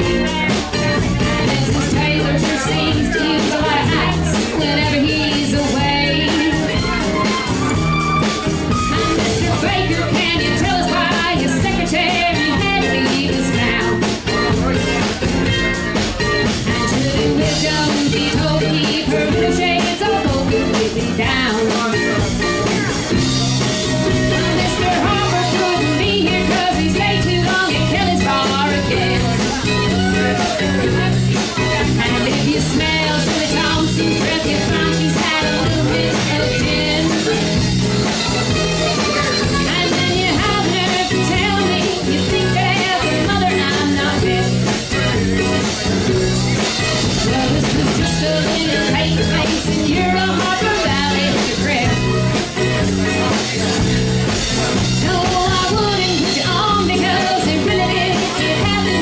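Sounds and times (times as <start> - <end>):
woman singing: 0.0 - 7.4, 8.9 - 14.2, 16.6 - 22.3, 24.3 - 37.7, 39.2 - 44.8, 47.2 - 52.2, 55.0 - 59.0
acoustic guitars strumming: 0.0 - 59.0
drums: 0.0 - 59.0
mandolin: 0.0 - 59.0.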